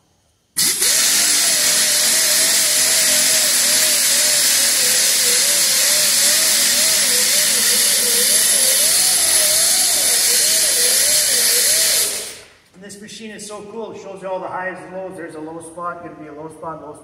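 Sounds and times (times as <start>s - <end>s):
air sander grinding paint: 0.6s - 12.5s.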